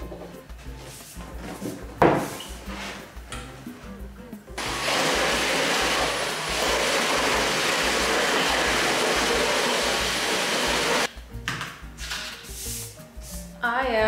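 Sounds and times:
stick vacuum cleaner running: 4.6s - 11.1s.

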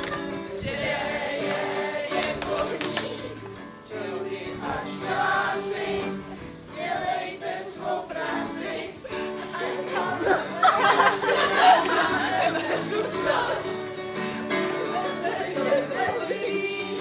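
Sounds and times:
acoustic guitar: 0.0s - 17.0s
group singing: 0.0s - 17.0s.

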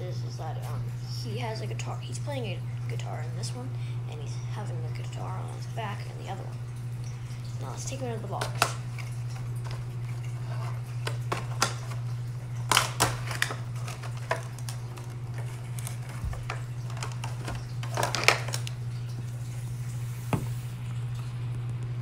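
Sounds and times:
packaging rustling and clicking: 8.4s - 18.8s
figure knocking on wooden table: 20.3s - 20.6s.

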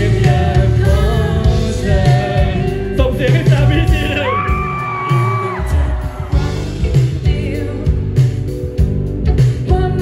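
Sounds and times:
live pop-rock band playing: 0.0s - 10.0s
woman singing: 5.1s - 8.5s, 9.2s - 10.0s.

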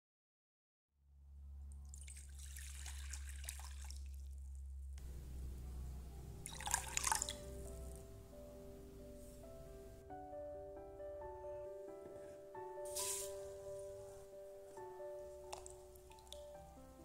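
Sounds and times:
low steady hum: 1.0s - 12.1s
water pouring into glass bowl: 1.8s - 4.3s, 6.4s - 8.0s
milk pouring with splash: 1.9s - 4.2s, 6.4s - 7.9s, 15.4s - 16.5s.

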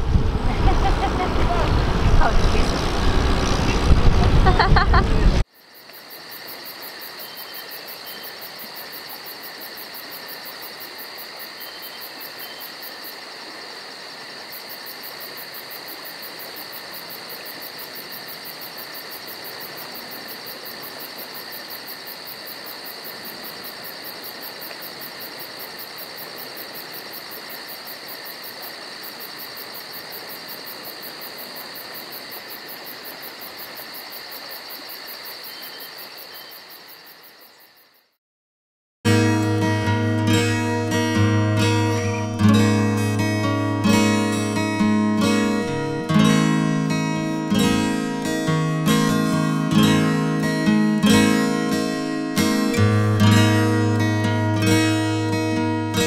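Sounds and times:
motor noise: 0.0s - 5.4s
crickets chirping: 4.4s - 38.2s, 39.6s - 56.0s.

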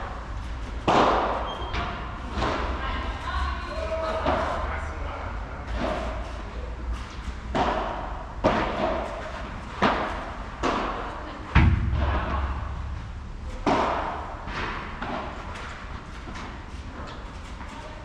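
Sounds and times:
ball struck by paddles: 0.8s - 1.4s, 7.5s - 16.5s
deep thud: 11.5s - 15.3s.

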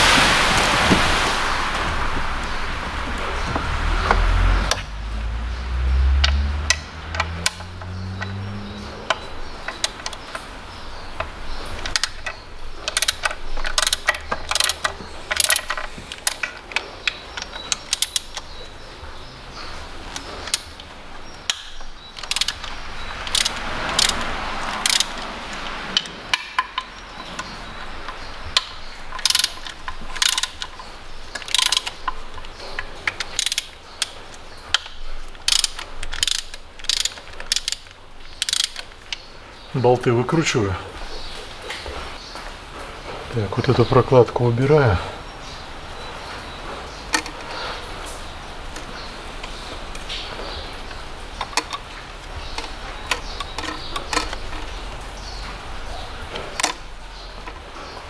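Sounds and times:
low hum rising in pitch: 0.3s - 9.3s
hand ratchet clicking: 3.4s - 18.8s, 19.6s - 39.3s, 47.0s - 57.6s.

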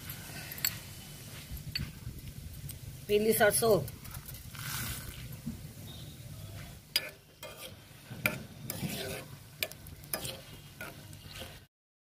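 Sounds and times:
spices sizzling in hot oil: 0.0s - 11.7s
spoon scraping a pan: 6.9s - 11.7s.

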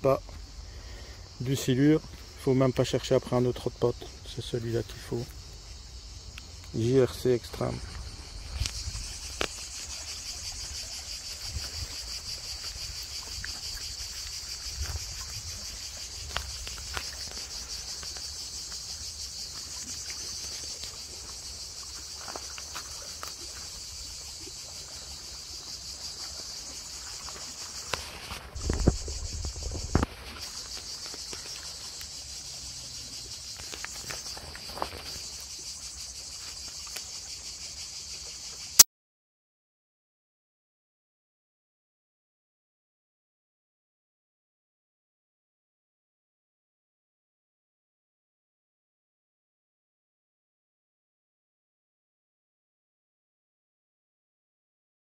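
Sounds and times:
insect chorus chirring: 0.0s - 38.8s.

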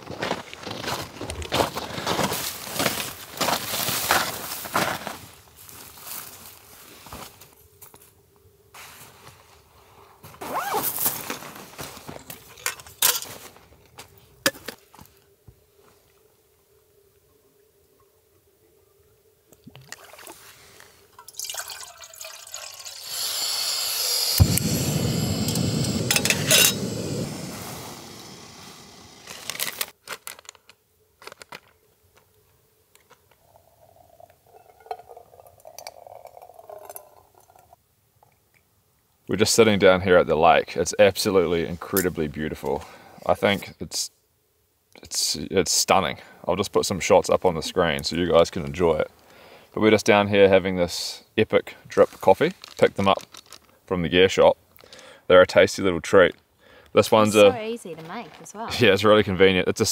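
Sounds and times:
nylon fabric rustling: 10.4s - 12.1s
water pouring from kettle: 21.1s - 27.4s, 33.8s - 37.6s
gas stove burner rushing: 23.0s - 29.3s
paper pouch crinkling: 29.2s - 31.6s, 52.5s - 53.8s.

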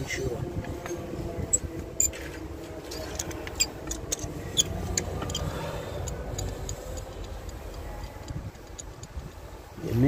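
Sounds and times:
low steady rumble: 0.0s - 10.0s
ratchet wrench clicking: 3.1s - 9.4s.

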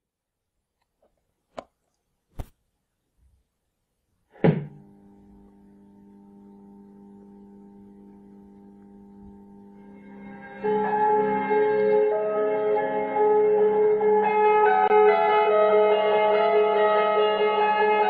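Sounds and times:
loud pop: 4.4s - 4.8s
transmitter hum of several tones: 4.4s - 11.4s.

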